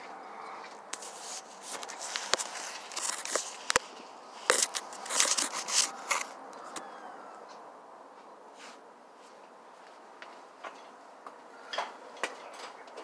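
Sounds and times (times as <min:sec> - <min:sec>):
rustling and scraping: 0:00.0 - 0:06.8, 0:08.2 - 0:11.0.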